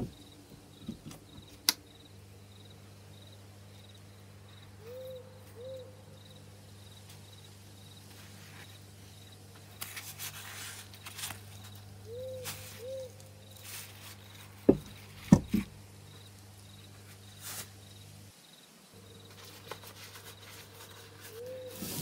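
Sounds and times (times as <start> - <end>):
steady low hum: 0.0 - 21.5
short scraping strokes: 19.7 - 22.0.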